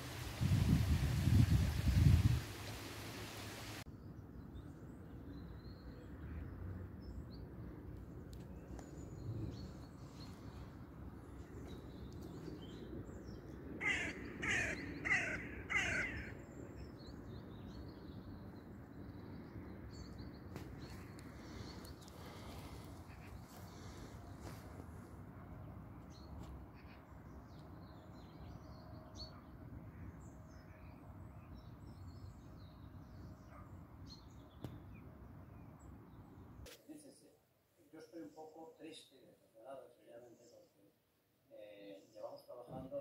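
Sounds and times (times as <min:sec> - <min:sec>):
low outdoor background hum: 0:02.6 - 0:42.4
crow cawing: 0:13.8 - 0:16.4.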